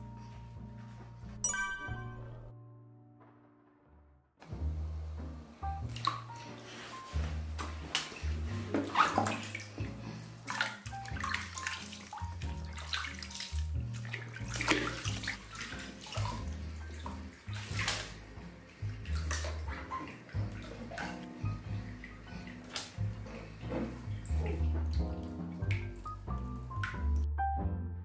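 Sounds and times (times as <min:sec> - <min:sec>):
water splashing in a bathtub: 0:05.7 - 0:27.3
background music with bass line: 0:07.1 - 0:28.0.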